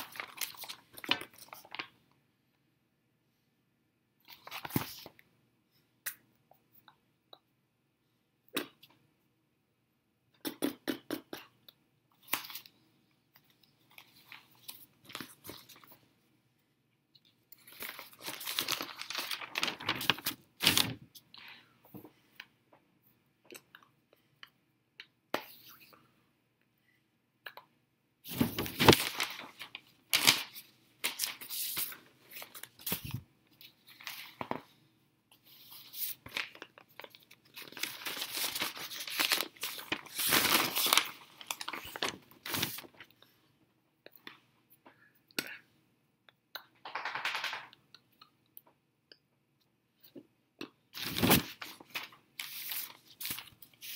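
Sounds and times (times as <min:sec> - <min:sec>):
newspaper crinkling: 0:00.0 - 0:01.9, 0:17.6 - 0:21.0, 0:28.3 - 0:34.6, 0:35.4 - 0:43.1, 0:51.0 - 0:53.9.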